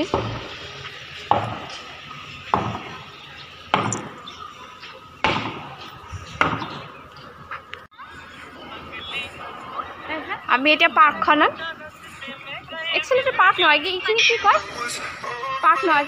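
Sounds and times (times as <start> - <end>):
sharp knocks: 2.5 - 2.9, 3.7 - 4.2, 5.2 - 5.7, 6.4 - 6.8.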